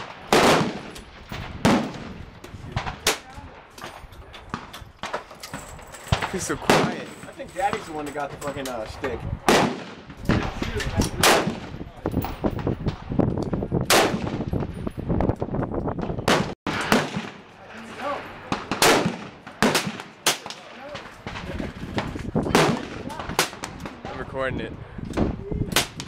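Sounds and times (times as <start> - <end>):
rifle shots with echo: 0.0 - 3.3, 6.0 - 8.0, 9.4 - 11.8, 13.9 - 14.6, 16.2 - 24.2.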